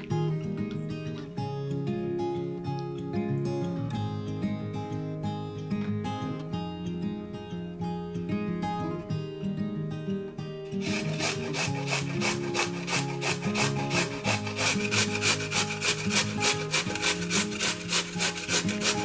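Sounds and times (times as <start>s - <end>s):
acoustic guitar music: 0.0s - 19.0s
food grating on hand grater: 10.8s - 19.0s.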